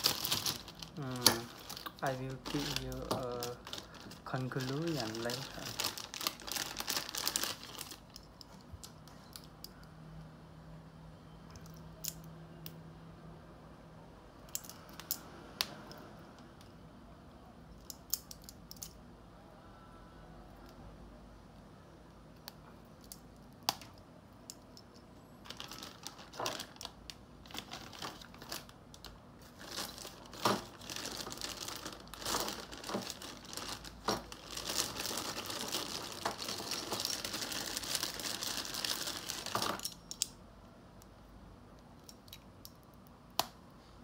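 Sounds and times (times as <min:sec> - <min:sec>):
plastic bags crinkling: 0:00.0 - 0:08.8, 0:25.4 - 0:39.9.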